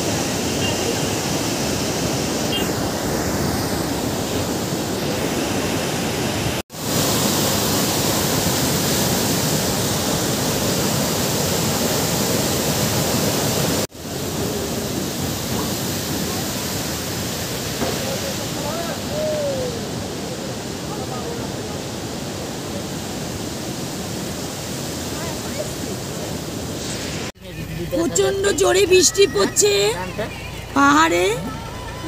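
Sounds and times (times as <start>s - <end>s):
water rushing over boulders: 0.0s - 27.8s.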